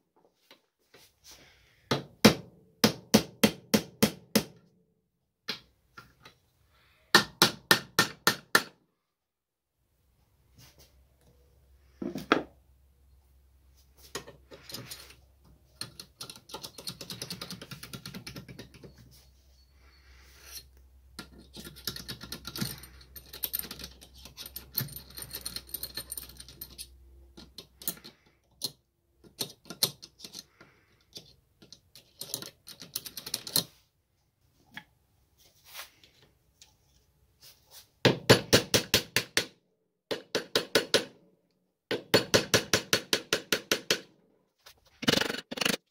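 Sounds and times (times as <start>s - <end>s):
screwdriver scraping and tapping metal: 14.1s - 19.1s, 20.4s - 33.7s.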